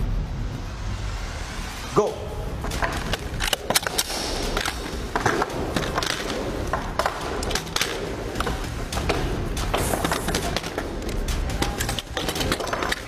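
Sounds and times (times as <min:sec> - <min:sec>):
room noise: 0:00.0 - 0:13.0
metal parts clicking and clacking: 0:02.6 - 0:13.0.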